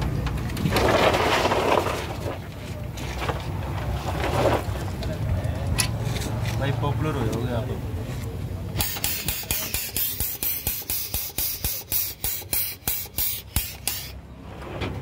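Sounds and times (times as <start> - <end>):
grease pump hissing strokes: 8.8 - 14.2.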